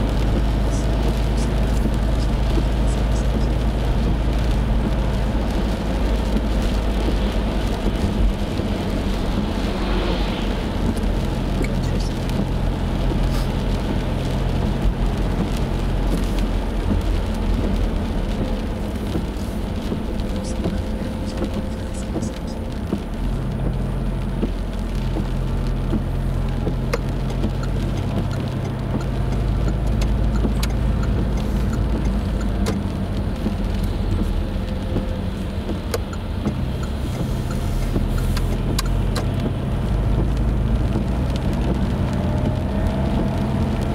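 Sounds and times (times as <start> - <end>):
car engine running: 0.0 - 43.9
tyres hissing on wet road: 0.0 - 43.9
faint rising whine: 9.0 - 11.4
light ticks: 10.9 - 43.9.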